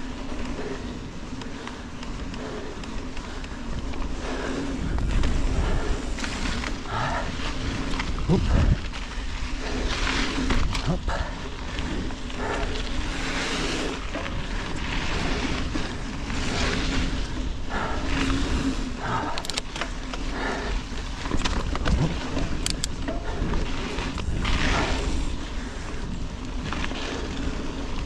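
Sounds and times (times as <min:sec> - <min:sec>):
bike clicks and rattles: 0:00.0 - 0:28.0
tyres rolling on sand: 0:00.0 - 0:28.0
wind on microphone: 0:03.7 - 0:19.6.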